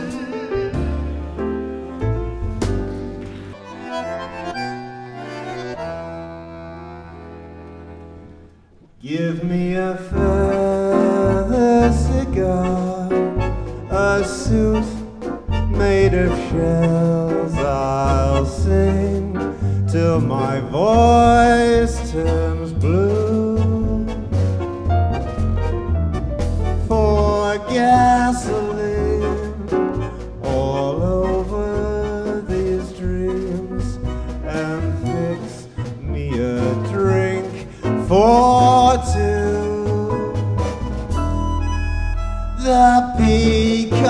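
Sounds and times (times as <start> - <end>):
band with bass: 0.0 - 8.6, 10.0 - 44.0
man singing: 9.0 - 24.6, 26.8 - 40.8, 42.4 - 44.0.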